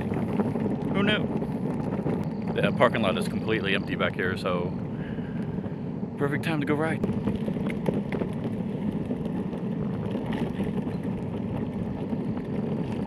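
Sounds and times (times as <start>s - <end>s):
wheels rumbling on asphalt: 0.0s - 13.0s
faint high whine: 2.1s - 7.3s.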